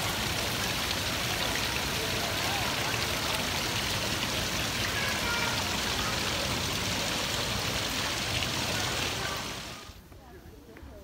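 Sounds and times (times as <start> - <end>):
fountain water splashing: 0.0 - 10.0.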